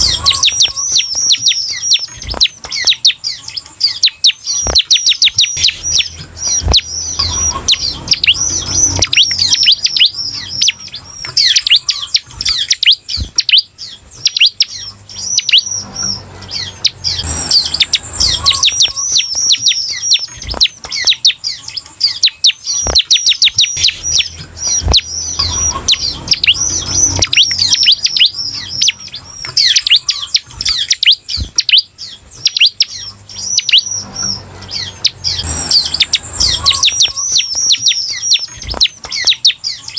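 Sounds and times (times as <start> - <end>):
bird singing high sharp notes: 0.0 - 39.9.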